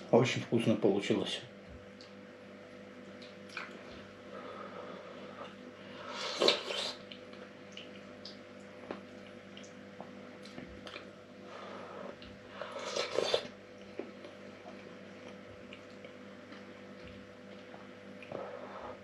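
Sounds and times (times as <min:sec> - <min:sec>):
faint steady hum: 0:00.0 - 0:19.0
wet chewing: 0:03.1 - 0:04.0.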